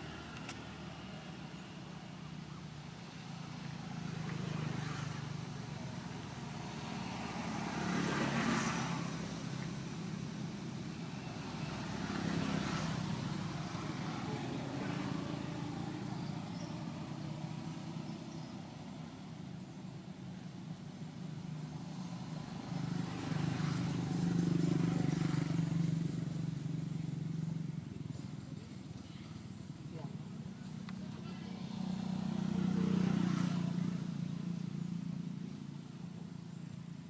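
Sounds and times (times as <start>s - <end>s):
vehicles driving past: 0.0s - 37.0s.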